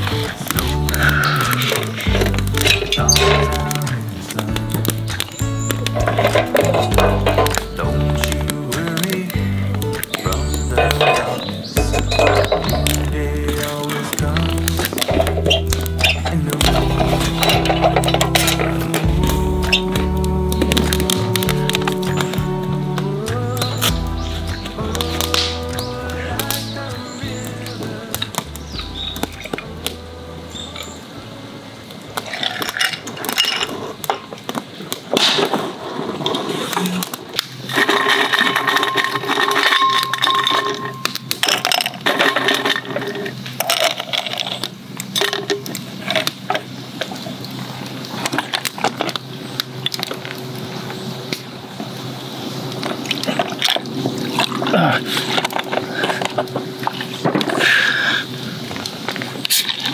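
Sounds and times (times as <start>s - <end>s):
ice cubes clinking in glass: 37.8s - 45.6s.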